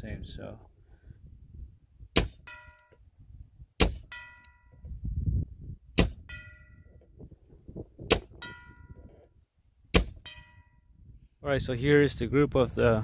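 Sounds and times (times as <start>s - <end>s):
metal target ringing: 2.2s - 3.0s, 3.8s - 4.9s, 6.0s - 7.1s, 8.1s - 9.3s, 9.9s - 11.0s.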